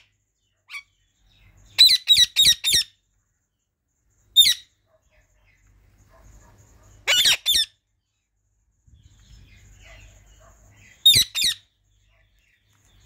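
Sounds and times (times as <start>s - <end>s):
parakeet squawks: 1.8s - 3.0s, 4.4s - 4.7s, 7.0s - 7.8s, 11.0s - 11.7s.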